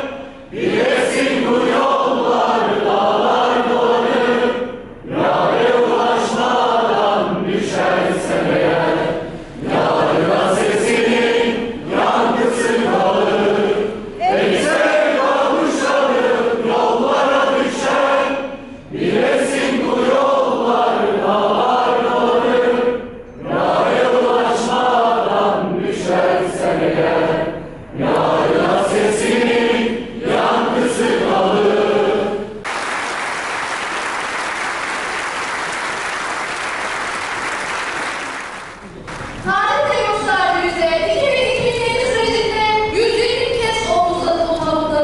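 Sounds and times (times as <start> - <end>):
crowd singing in unison: 0.0 - 32.6
crowd applauding: 32.6 - 39.4.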